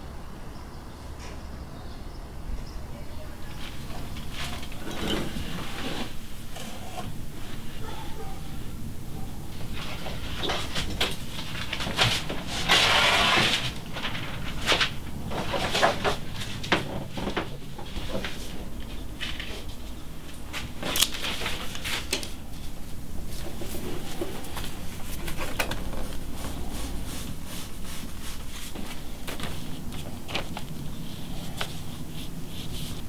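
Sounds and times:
steady low hum: 0:13.4 - 0:33.0
pencil scratching on paper: 0:23.4 - 0:33.0.

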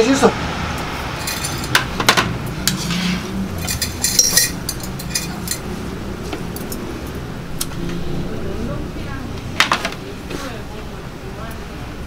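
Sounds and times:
steady low hum: 0:00.4 - 0:12.0
bowls clinking and knocking: 0:01.2 - 0:07.2.

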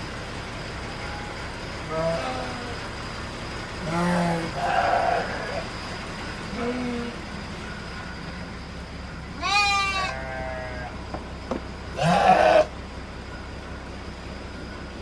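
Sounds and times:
sheep bleating: 0:03.8 - 0:05.6, 0:09.4 - 0:11.0, 0:12.0 - 0:12.7.

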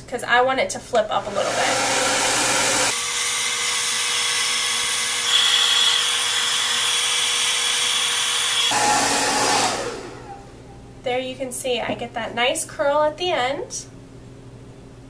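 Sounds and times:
hair dryer running: 0:01.2 - 0:10.4
high whine: 0:05.2 - 0:06.8.

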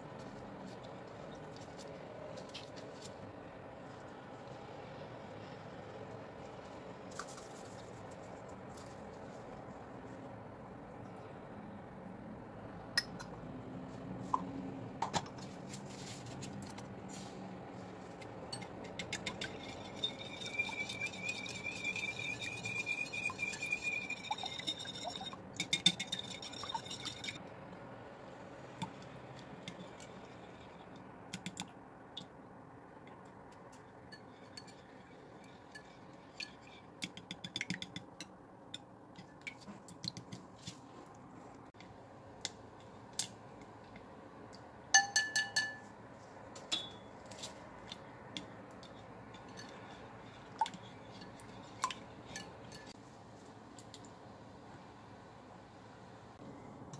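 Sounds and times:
whisk clicking against glass bowl: 0:18.6 - 0:27.4.

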